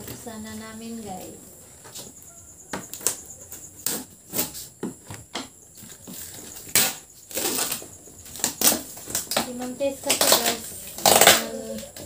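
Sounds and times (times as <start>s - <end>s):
tape and cardboard rustling: 1.1s - 12.0s
packing tape ripping: 3.8s - 4.6s, 6.5s - 11.8s.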